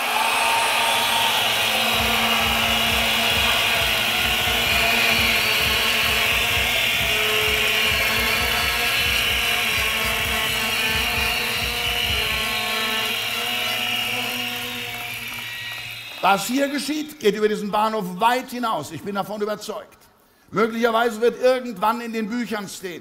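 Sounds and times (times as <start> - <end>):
crowd cheering and applauding: 0.0 - 17.0
held tones: 0.6 - 16.7
regular low beat: 1.4 - 14.9.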